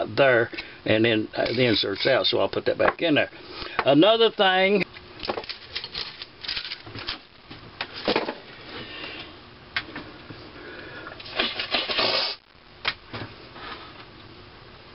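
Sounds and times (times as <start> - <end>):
metal parts clinking and knocking: 5.3 - 6.9.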